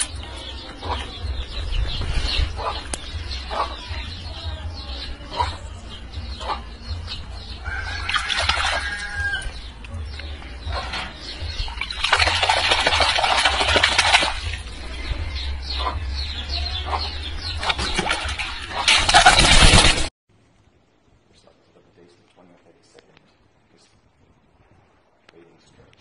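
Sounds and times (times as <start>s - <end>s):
water splashing: 7.8s - 9.2s, 11.5s - 15.0s, 17.4s - 20.1s
wings flapping: 11.8s - 14.7s, 17.5s - 20.1s.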